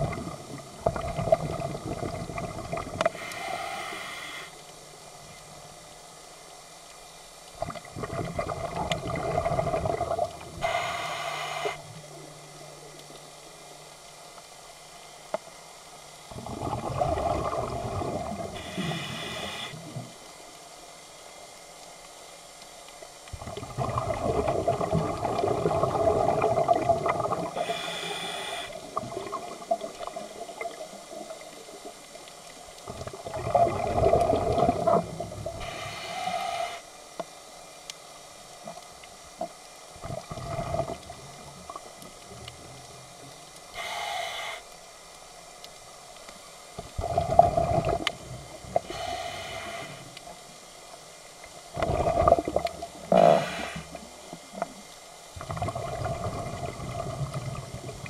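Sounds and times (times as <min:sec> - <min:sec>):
exhaled bubbles gurgling: 0:00.0 - 0:03.9, 0:07.5 - 0:11.7, 0:16.3 - 0:20.2, 0:23.3 - 0:35.9, 0:39.9 - 0:43.1, 0:46.8 - 0:50.2, 0:51.7 - 0:54.8, 0:55.4 - 0:58.0
diver breathing through regulator: 0:03.1 - 0:04.6, 0:10.6 - 0:11.9, 0:18.6 - 0:19.9, 0:27.6 - 0:28.8, 0:35.6 - 0:36.9, 0:43.7 - 0:44.7, 0:48.8 - 0:50.1, 0:53.1 - 0:54.0.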